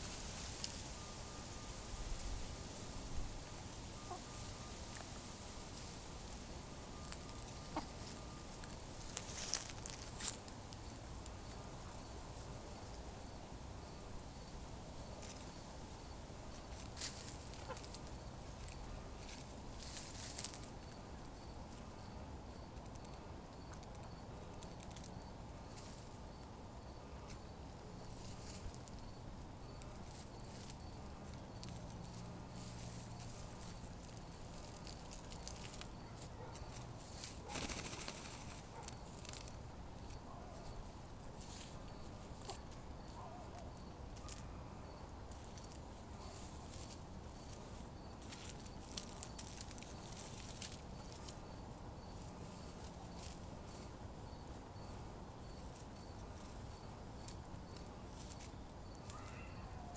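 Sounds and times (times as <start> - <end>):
hens dust bathing rustles: 0.0 - 10.5, 29.9 - 39.7
soft background hiss: 0.0 - 59.9.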